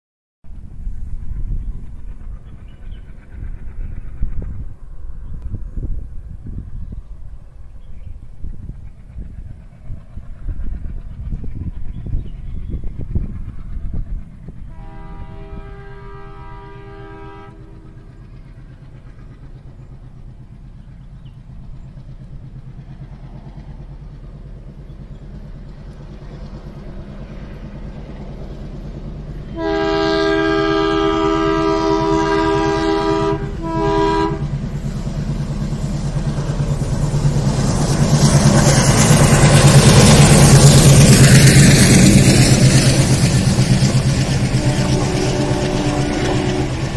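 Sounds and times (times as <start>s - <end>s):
diesel locomotive engine rumble: 0.5s - 46.9s
locomotive air horn: 14.7s - 18.0s, 29.5s - 34.6s, 44.4s - 46.9s.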